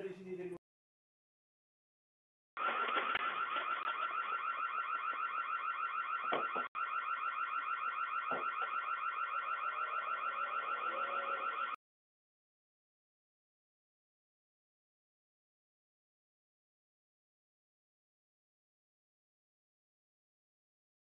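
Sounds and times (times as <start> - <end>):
electronic alarm pulsing high tone: 2.6 - 11.8.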